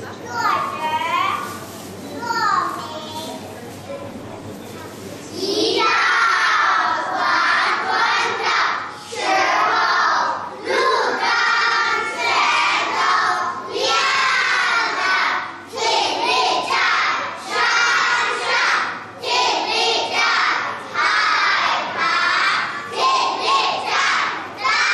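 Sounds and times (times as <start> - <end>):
children reciting in unison: 5.4 - 24.9.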